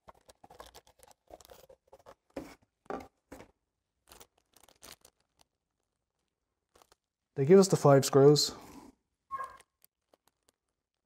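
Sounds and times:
cardboard and plastic bags rustling: 0.0s - 7.1s.

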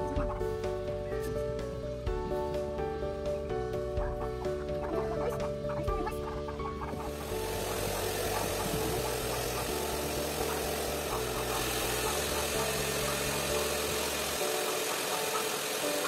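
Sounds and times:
hair dryer running: 7.0s - 16.0s.

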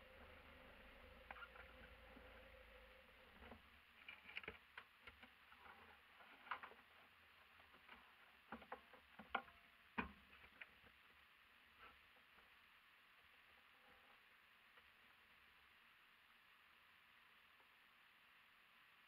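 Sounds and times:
small clicks and rustles: 3.4s - 11.1s.

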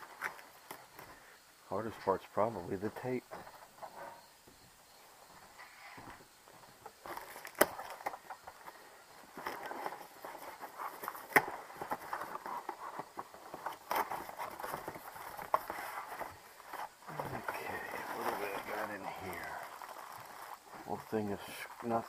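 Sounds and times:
packing paper rustling: 7.0s - 22.0s
cardboard snaps and knocks: 7.1s - 8.3s, 11.1s - 15.8s.

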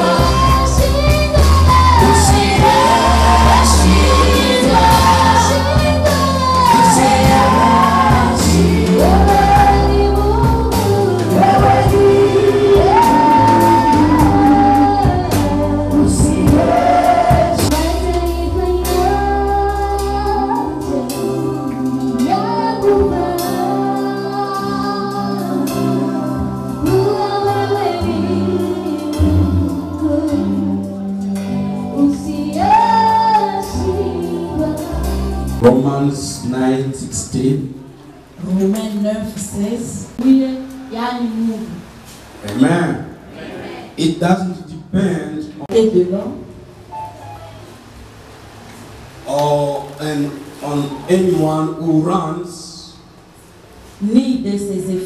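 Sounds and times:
women singing gospel: 0.0s - 36.1s
instrumental backing: 0.0s - 44.0s, 45.6s - 51.9s.

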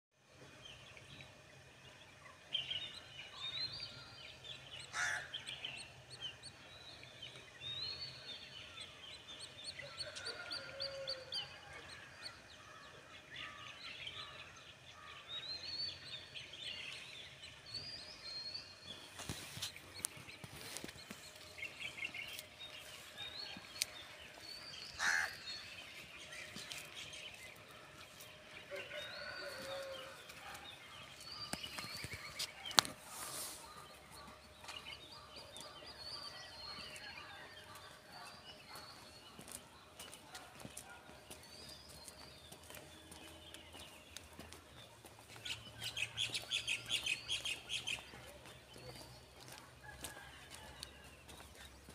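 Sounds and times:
small birds chirping: 15.2s - 51.9s.

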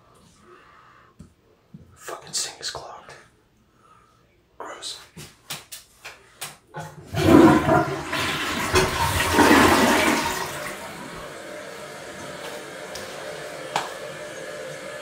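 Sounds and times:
toilet flushing: 6.8s - 15.0s.

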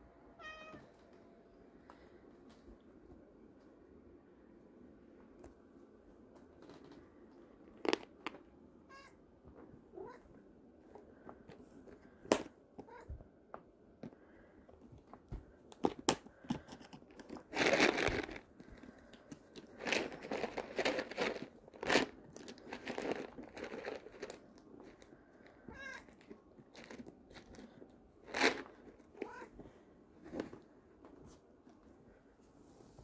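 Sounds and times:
treats rattling in plastic container: 16.0s - 18.8s, 19.4s - 25.0s.

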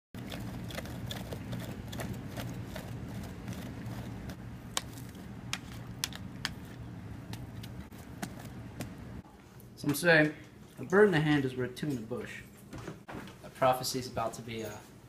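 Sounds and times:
low steady hum: 0.2s - 15.0s.

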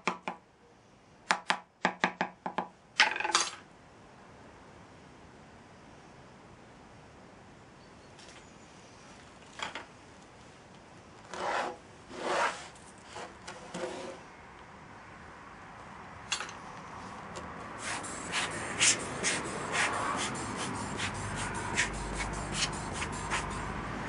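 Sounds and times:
wooden flask rubbing and scraping: 11.2s - 14.2s, 17.8s - 23.7s.

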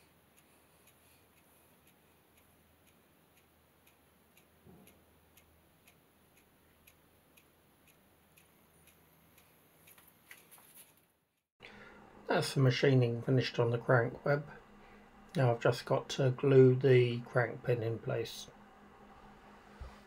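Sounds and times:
faint evenly spaced ticking: 0.0s - 10.5s
light irregular clicks: 0.0s - 10.5s.

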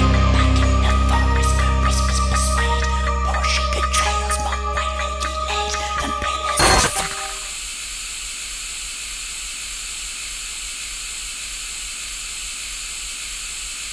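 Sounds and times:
music: 0.0s - 7.5s
loud noise burst: 6.6s - 8.6s
tv static hiss: 6.6s - 13.9s.

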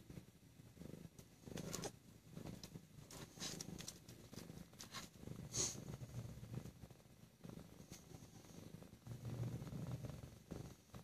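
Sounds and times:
cat purring: 0.0s - 11.0s.

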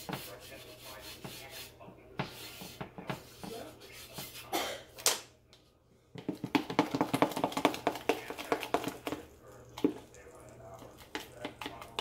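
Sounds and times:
pastry brush sweeping griddle: 0.0s - 4.5s.

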